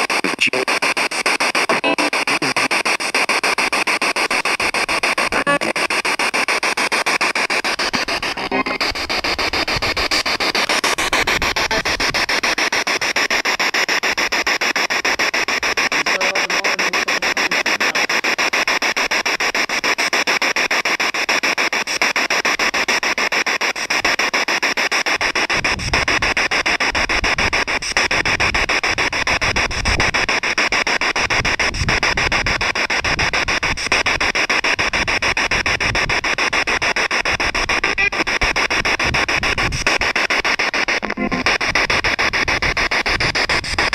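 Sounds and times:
static hiss: 0.0s - 43.9s
low rumbling puffs: 7.6s - 13.5s, 41.2s - 43.9s.

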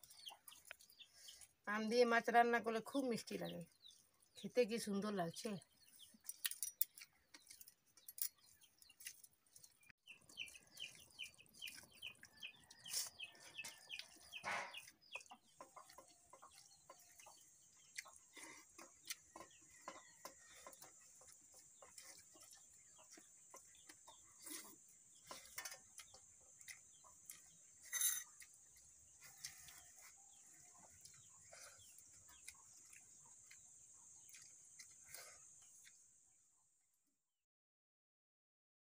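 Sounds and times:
sharp clink: 27.9s - 28.3s.

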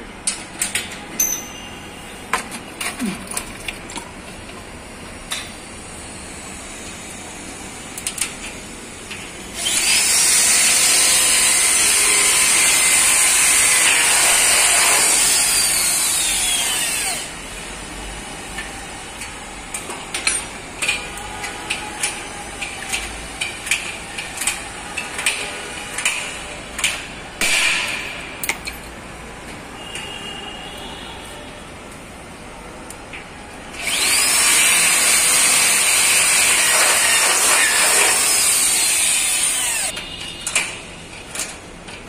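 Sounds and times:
power drill running: 9.5s - 17.4s, 33.7s - 40.0s.

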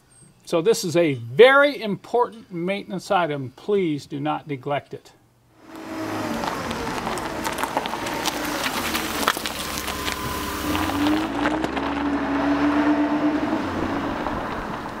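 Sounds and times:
vehicle engine running: 5.6s - 15.0s.

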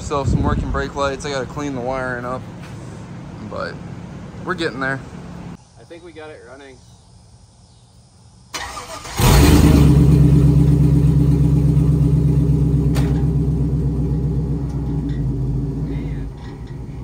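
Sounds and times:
engine cranking and starting: 8.6s - 11.4s
engine idling: 8.6s - 17.0s.

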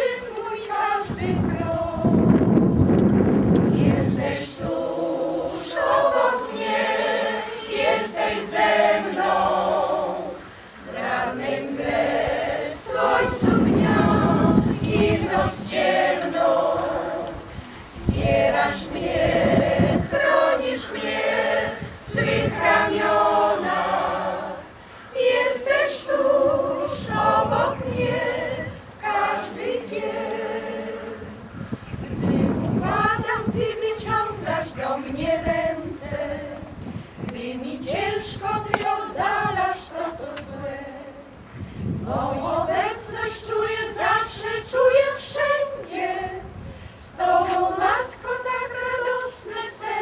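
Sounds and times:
mixed choir singing a cappella: 0.0s - 50.0s.

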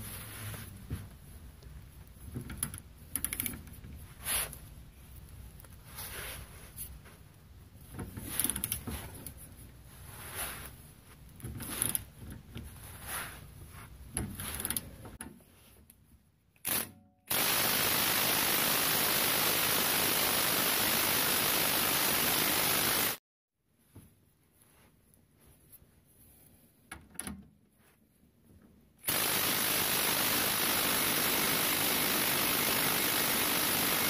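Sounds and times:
hand ratchet turning bolt: 2.6s - 3.7s
loud steady hiss: 17.3s - 23.2s.

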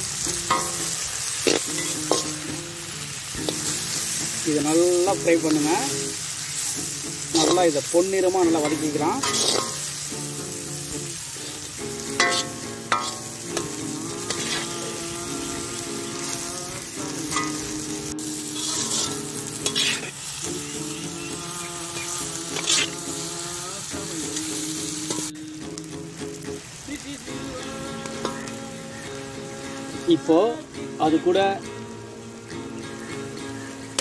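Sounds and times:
onions sizzling in oil: 0.0s - 34.0s
metal spatula scraping pan: 8.4s - 10.0s, 12.0s - 15.0s, 18.5s - 23.0s.

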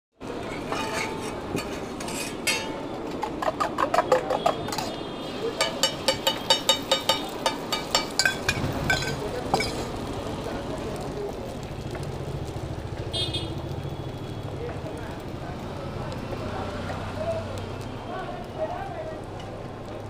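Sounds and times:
metal spoon clinking on vessel: 5.6s - 9.8s.

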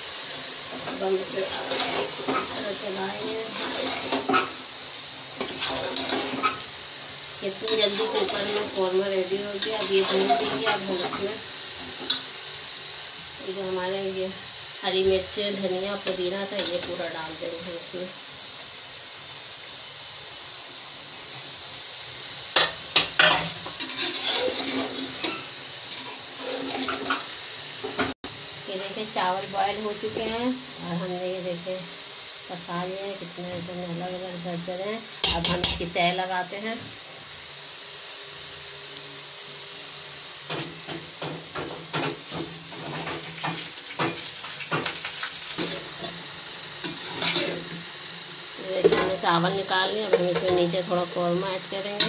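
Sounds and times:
food sizzling in a pot: 0.0s - 52.0s
spoon scraping through food: 3.4s - 4.5s, 9.6s - 11.1s, 23.2s - 27.2s.

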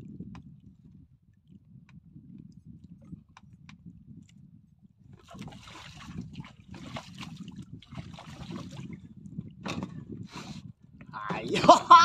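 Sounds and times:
water splashing against boat: 5.1s - 10.6s.

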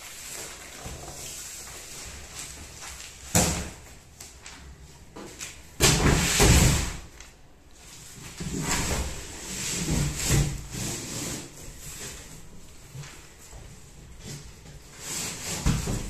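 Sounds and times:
plastic-wrapped mattress sliding on wood: 7.8s - 13.4s, 14.1s - 16.0s.

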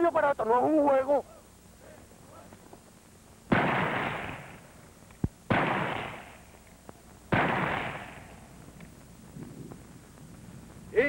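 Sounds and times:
rifle shots echoing: 3.5s - 4.8s, 5.5s - 6.6s, 7.3s - 8.6s.

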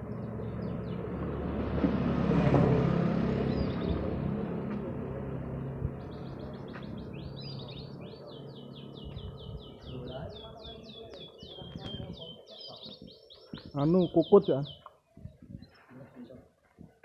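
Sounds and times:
passing vehicle engine: 0.0s - 9.6s
canary singing: 6.0s - 15.7s.

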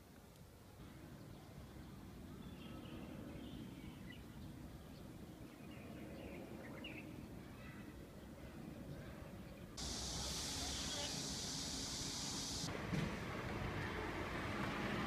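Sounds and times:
low city rumble: 0.0s - 15.0s
small birds chirping: 9.5s - 12.7s.

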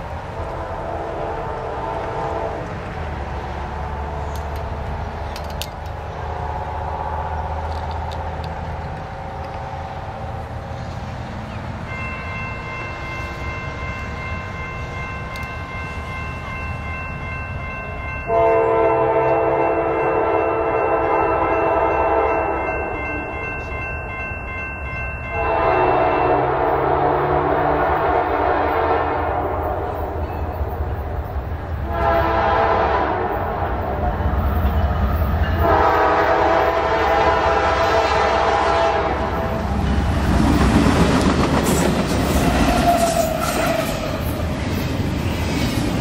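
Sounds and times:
diesel locomotive engine rumble: 0.0s - 46.0s
train horn blast: 0.4s - 2.8s, 18.3s - 22.8s, 25.3s - 30.1s, 31.8s - 34.0s, 35.6s - 39.8s, 42.4s - 44.2s
steady high ringing tone: 11.8s - 26.5s.

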